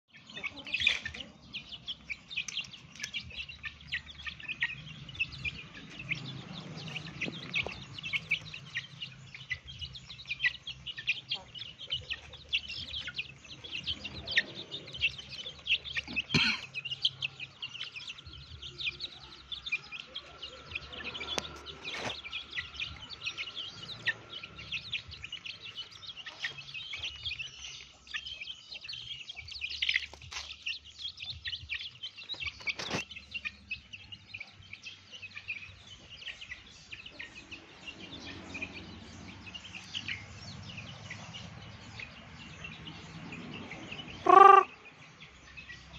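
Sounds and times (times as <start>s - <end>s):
chicks peeping and chirping: 0.0s - 45.9s.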